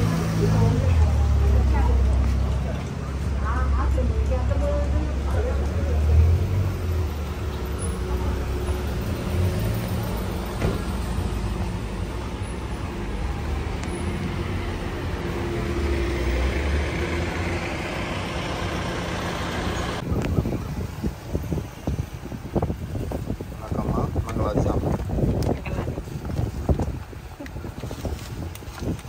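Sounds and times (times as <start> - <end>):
vehicle engine rumbling: 0.0 - 29.0
gusty wind buffeting: 19.8 - 29.0.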